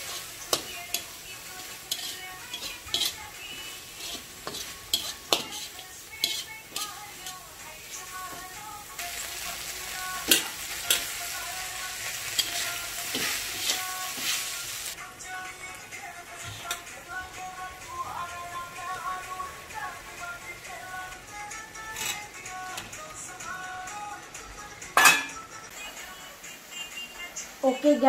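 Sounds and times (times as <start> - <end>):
food sizzling in a pan: 0.0 - 28.0
utensil scraping a pan: 1.8 - 7.4, 16.4 - 16.8, 21.8 - 23.0.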